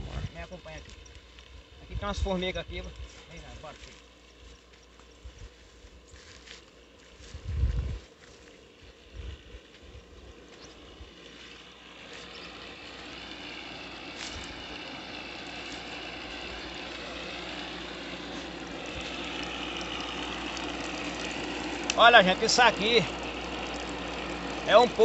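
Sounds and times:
water pump humming: 8.4 - 25.0.

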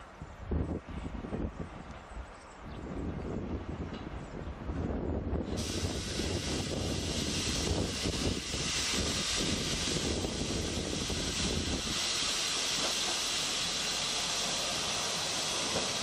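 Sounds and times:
diesel railcar roar: 2.9 - 16.0
steady hiss: 5.5 - 16.0.

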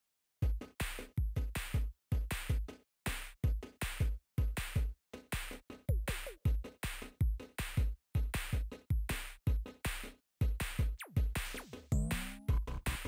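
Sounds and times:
electronic music with drum-machine beat: 4.0 - 9.8, 10.4 - 13.0.

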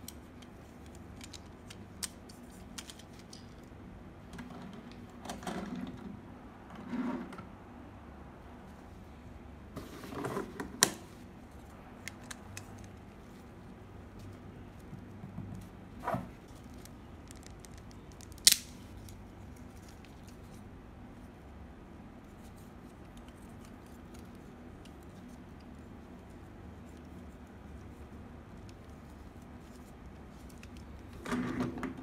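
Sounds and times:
spinning top clicking and knocking: 16.7 - 18.8.

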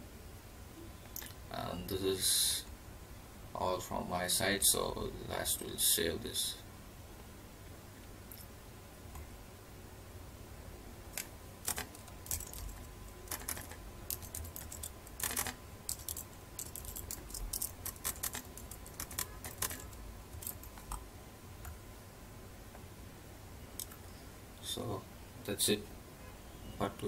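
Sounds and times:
computer keyboard typing: 11.1 - 21.0.

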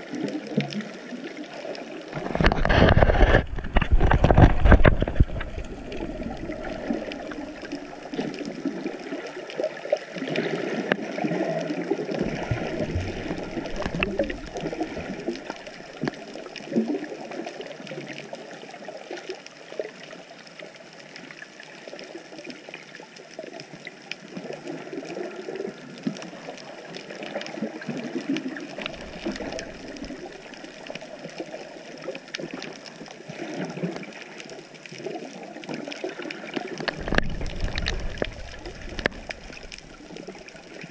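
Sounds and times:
muffled water sloshing and gurgling: 0.0 - 19.4, 23.3 - 40.9
faint scattered clicks: 28.2 - 40.9.

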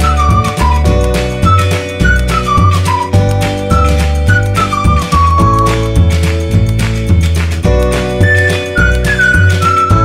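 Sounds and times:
background music with bass line: 0.0 - 10.0.

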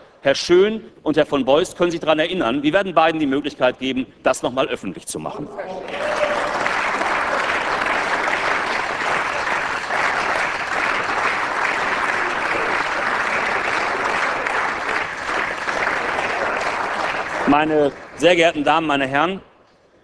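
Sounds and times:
crowd applauding: 5.7 - 19.1.

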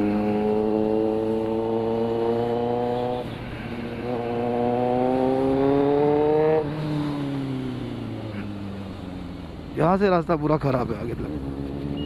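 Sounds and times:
motorcycle engine accelerating: 0.0 - 9.6, 11.0 - 12.0.

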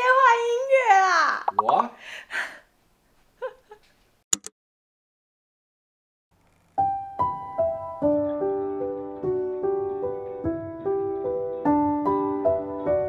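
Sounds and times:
sharp click: 4.3 - 4.5
soft solo piano: 6.9 - 13.0.

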